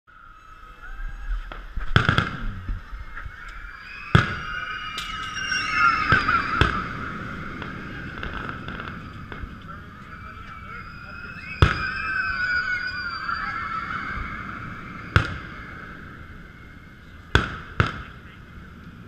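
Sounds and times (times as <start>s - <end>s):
fireworks bursting with sharp bangs: 1.5s - 10.9s, 11.5s - 13.5s, 14.2s - 16.7s, 17.3s - 18.3s.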